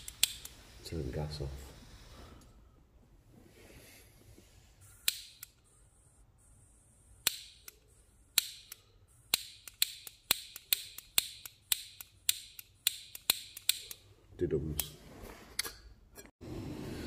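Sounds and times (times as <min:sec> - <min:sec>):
spark igniter clicking: 0:00.0 - 0:00.6, 0:05.0 - 0:05.6, 0:07.2 - 0:14.0.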